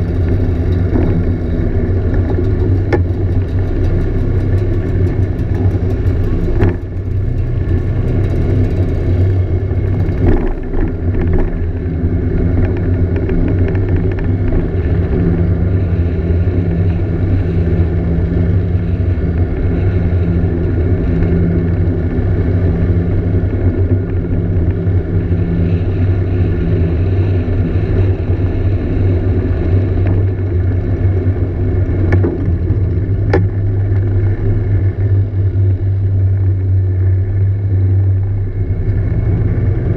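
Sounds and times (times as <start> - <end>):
scooter engine humming: 0.0 - 39.9.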